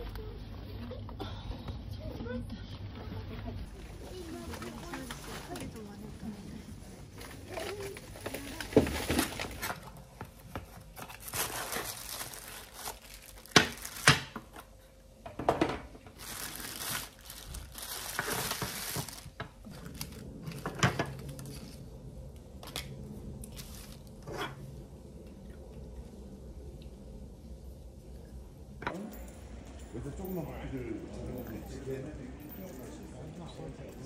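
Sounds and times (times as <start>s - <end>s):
plastic bag crinkling: 7.1s - 10.1s, 10.7s - 14.4s, 16.1s - 21.8s.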